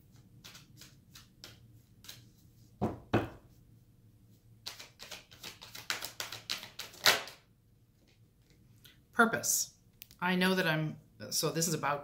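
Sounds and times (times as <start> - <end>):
cards tapping and clicking: 0.4 - 2.3, 4.6 - 7.4
sharp knocks on table: 2.8 - 3.4.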